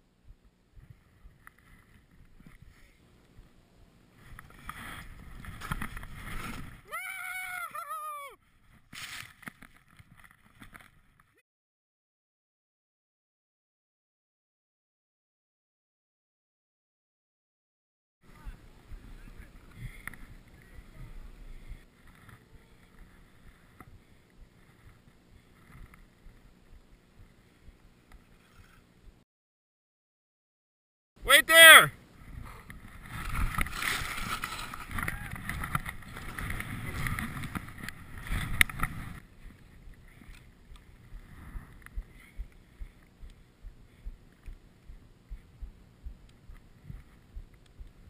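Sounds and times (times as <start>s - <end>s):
skis sliding through snow: 4.2s - 6.8s, 33.0s - 39.2s
wind rumble on microphone: 18.3s - 27.9s, 32.2s - 48.0s.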